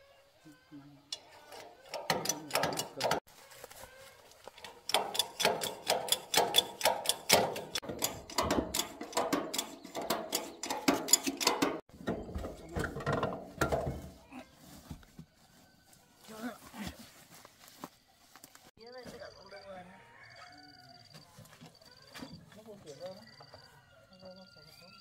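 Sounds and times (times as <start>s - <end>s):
sharp mechanical clicks: 4.6s - 11.7s.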